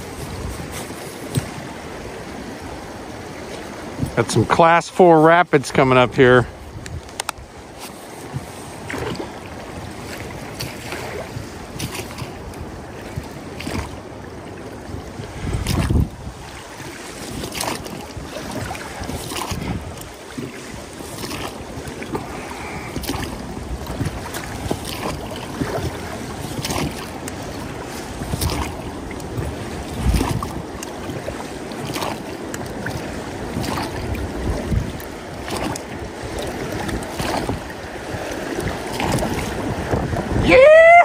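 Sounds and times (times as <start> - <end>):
river water rushing and splashing: 0.0 - 41.0
wind buffeting microphone: 0.0 - 41.0.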